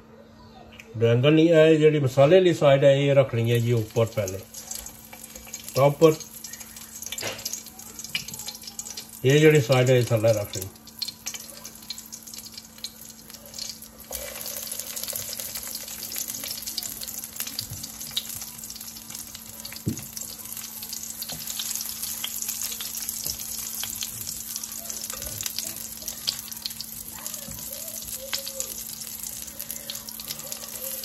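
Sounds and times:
aubergine sizzling in hot oil: 0:03.2 - 0:31.0.

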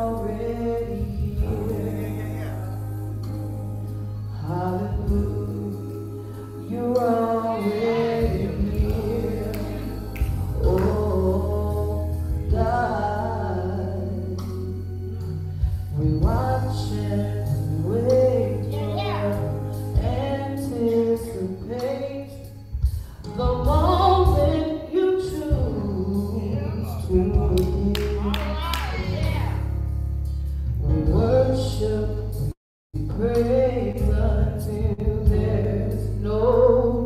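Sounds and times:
woman singing gospel: 0:00.0 - 0:03.4, 0:04.3 - 0:15.3, 0:15.9 - 0:22.5, 0:23.3 - 0:29.6
accompaniment with low bass: 0:00.0 - 0:37.0.

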